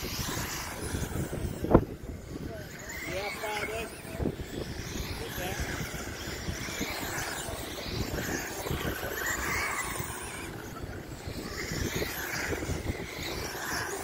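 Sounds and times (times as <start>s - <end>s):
model car motors whining: 0.0s - 14.0s
wind rumble on microphone: 0.0s - 14.0s.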